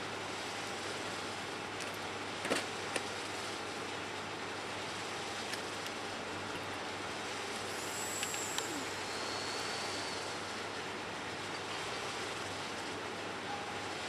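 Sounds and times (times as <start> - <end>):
steady rushing background noise: 0.0 - 14.0
thin high whistle: 7.7 - 10.5.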